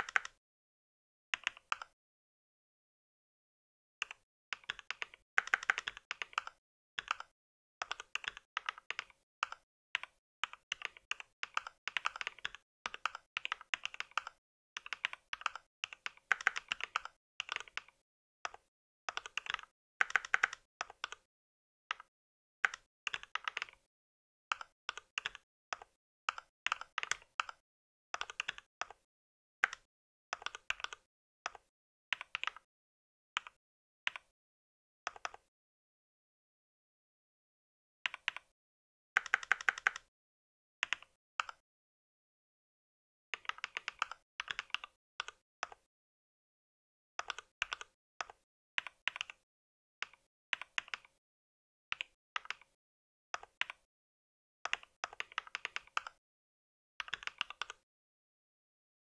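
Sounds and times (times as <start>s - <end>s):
mechanical keyboard typing: 0.0s - 0.4s, 4.0s - 21.3s, 21.9s - 23.9s, 24.5s - 27.6s, 28.2s - 29.0s, 29.6s - 32.7s, 39.2s - 40.1s, 43.4s - 45.8s, 47.2s - 49.4s, 51.9s - 52.8s, 54.7s - 56.2s, 57.0s - 57.8s.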